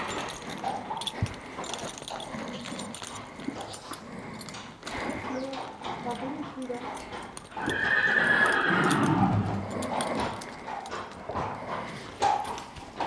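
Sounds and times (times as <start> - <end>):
horse whinnying: 7.5 - 10.3.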